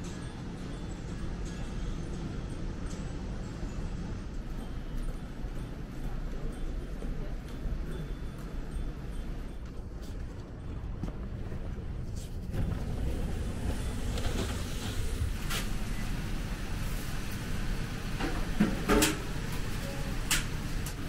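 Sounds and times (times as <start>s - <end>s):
restaurant interior rumble: 0.0s - 21.0s.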